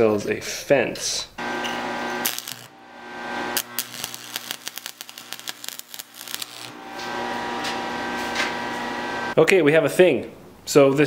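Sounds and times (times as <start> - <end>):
arc welding crackle: 1.4 - 8.1
steady hum: 1.4 - 9.4.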